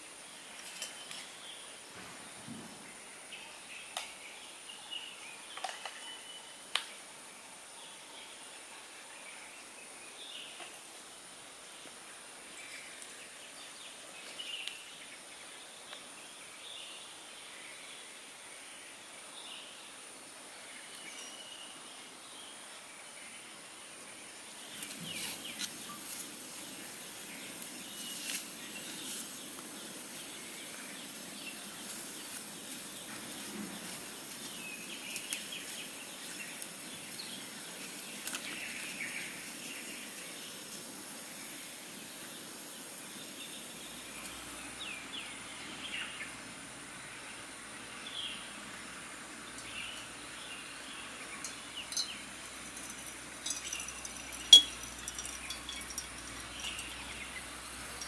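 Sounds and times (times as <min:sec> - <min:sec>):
insects buzzing: 0:09.5 - 0:58.0
birds chirping: 0:20.7 - 0:58.0.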